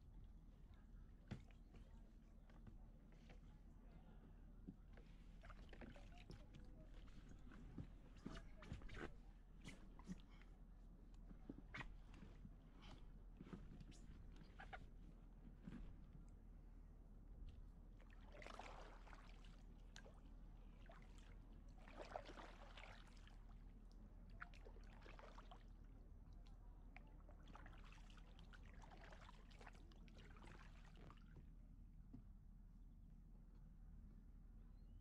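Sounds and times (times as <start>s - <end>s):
kayak paddle splashing: 18.1s - 20.2s, 20.8s - 23.4s.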